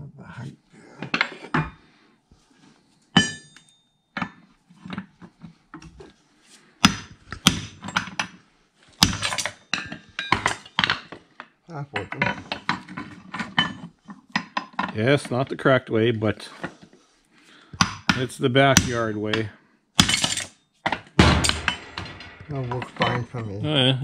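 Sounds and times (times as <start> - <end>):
metal knocks and clanks on anvil: 3.2 - 5.0, 6.8 - 8.4, 9.0 - 11.2, 12.0 - 14.9, 17.8 - 23.5.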